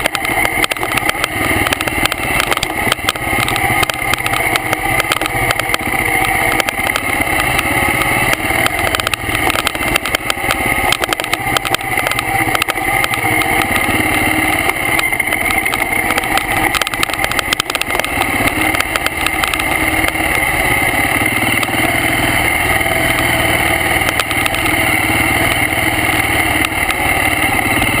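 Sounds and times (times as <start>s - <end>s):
bike knocks and rattles: 0.0s - 20.2s
motorcycle engine running: 0.0s - 28.0s.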